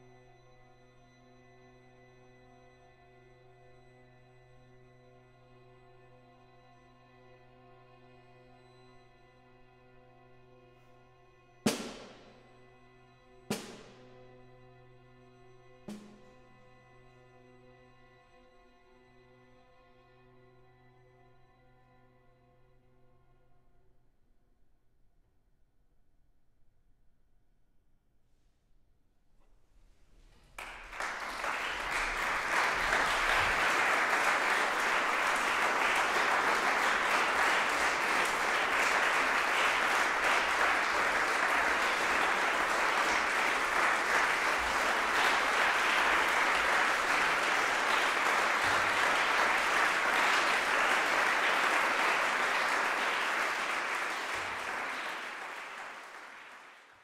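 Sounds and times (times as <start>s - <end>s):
audience applauding: 30.6s - 57.0s.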